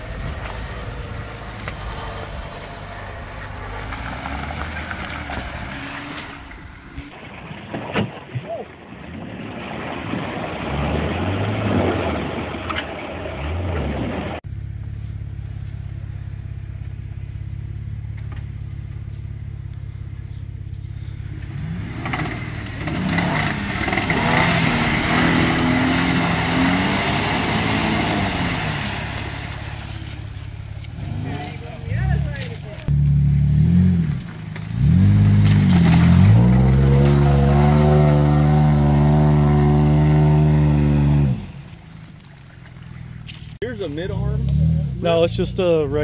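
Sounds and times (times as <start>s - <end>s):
engine idling: 0.0s - 7.1s, 14.4s - 26.6s, 27.5s - 38.3s
engine revving: 0.0s - 7.1s, 13.4s - 41.9s, 43.2s - 46.0s
tyres spinning in mud: 0.0s - 7.8s, 9.5s - 45.8s.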